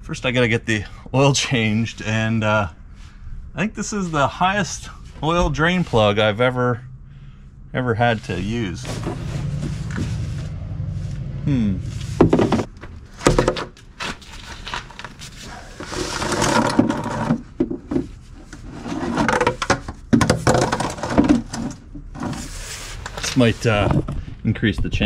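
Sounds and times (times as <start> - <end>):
plastic scraping: 8.2 - 24.3
plastic knocks and clatters: 12.2 - 15.1, 15.8 - 18.2, 19.1 - 22.3.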